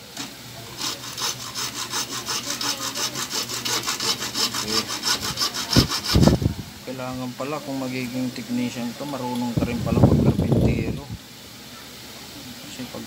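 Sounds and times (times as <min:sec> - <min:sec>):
hacksaw cutting wood: 0:00.2 - 0:06.4.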